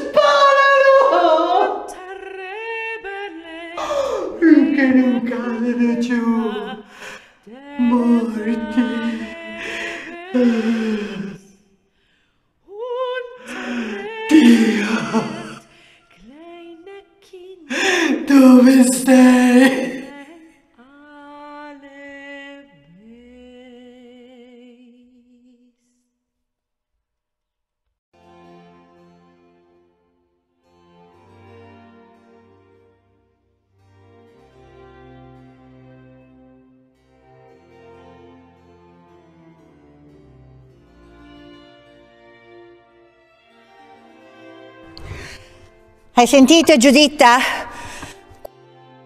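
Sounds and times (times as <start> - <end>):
person singing wordless lament: 0.0 - 11.5, 12.7 - 25.1.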